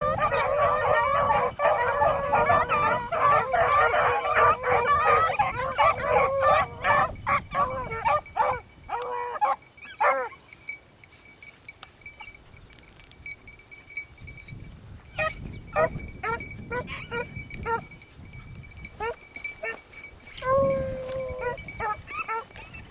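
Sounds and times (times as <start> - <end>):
beagles baying and yelping: 0.0 - 10.4, 15.2 - 18.0, 18.9 - 22.9.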